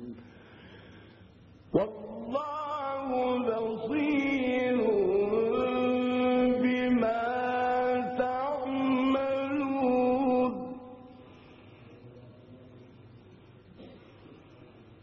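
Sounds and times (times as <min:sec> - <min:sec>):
man reciting melodically: 0:01.6 - 0:11.3.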